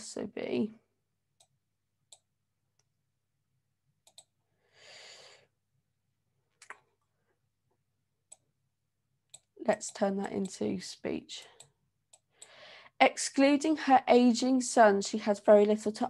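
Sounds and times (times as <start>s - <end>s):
faint mouse clicks: 4.0s - 4.3s
soft breath: 4.5s - 5.5s, 12.3s - 13.0s.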